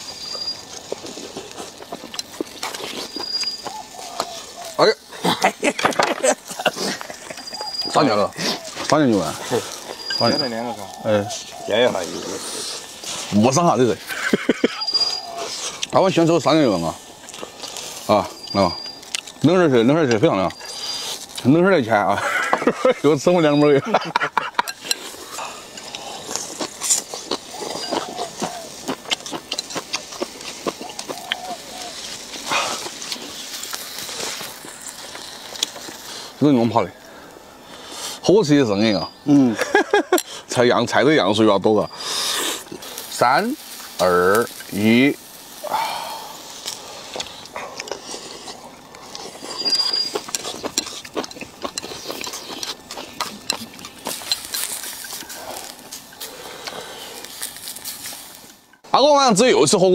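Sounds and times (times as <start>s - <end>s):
chewing and slurping: 0.0s - 5.5s, 16.9s - 19.5s, 20.1s - 21.5s, 24.4s - 36.4s, 41.8s - 58.8s
person slurping: 42.0s - 43.1s.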